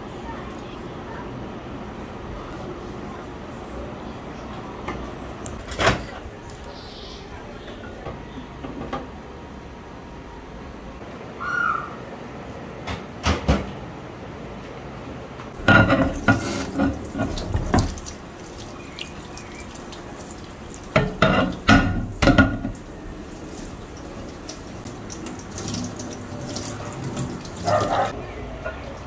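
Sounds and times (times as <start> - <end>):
glass clattering against sink: 15.6 - 18.0, 20.9 - 22.8
tap water running into sink: 15.6 - 28.1.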